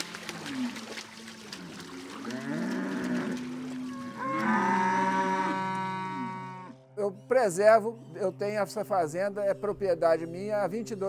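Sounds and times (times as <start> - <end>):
cattle mooing: 1.5 - 6.9.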